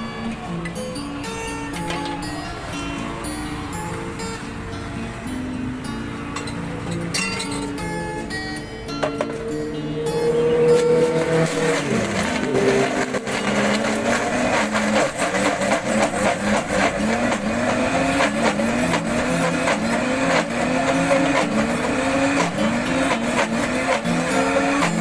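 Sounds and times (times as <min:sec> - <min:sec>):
blender crushing ice: 0:10.8 - 0:25.0.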